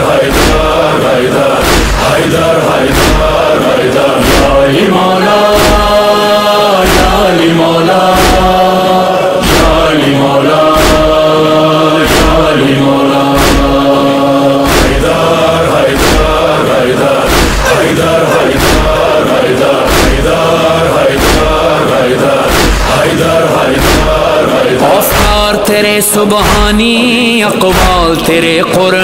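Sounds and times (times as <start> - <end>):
steady drum beat: 0.0 - 6.2, 6.9 - 11.4, 12.0 - 25.7
voices chanting long notes: 0.0 - 25.6.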